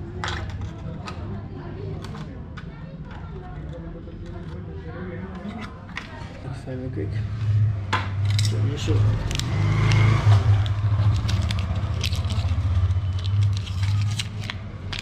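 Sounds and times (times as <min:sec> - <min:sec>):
blister pack tearing: 0:08.3 - 0:15.0.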